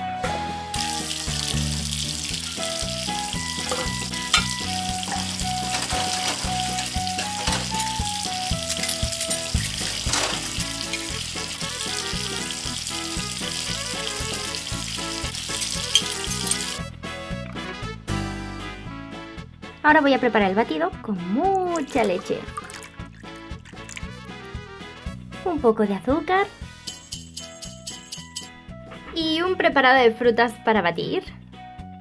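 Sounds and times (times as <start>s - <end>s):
light background music: 0.0s - 32.0s
running tap water hissing: 0.7s - 16.8s, 21.7s - 24.2s
metal pieces clinking: 3.6s - 8.0s, 8.6s - 11.1s, 15.6s - 16.8s, 26.9s - 28.5s.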